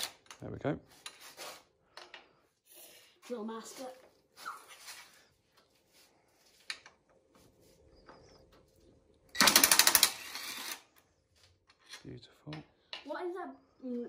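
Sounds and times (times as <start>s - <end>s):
drill clutch ratcheting: 9.3s - 10.8s
drill whirring: 9.3s - 10.9s.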